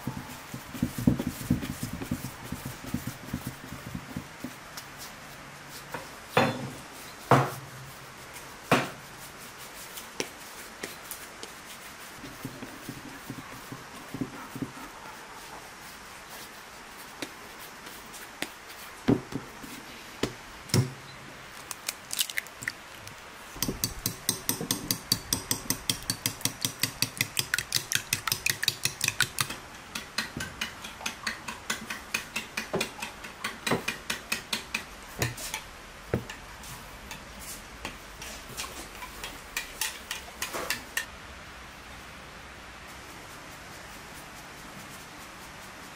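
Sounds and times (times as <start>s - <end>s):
fork beating eggs in a bowl: 23.6s - 35.7s, 38.2s - 41.1s.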